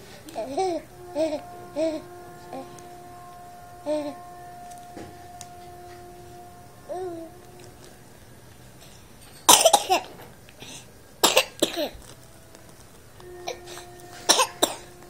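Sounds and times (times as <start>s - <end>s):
baby coughing: 9.5s - 10.1s, 11.2s - 12.0s, 14.3s - 14.8s.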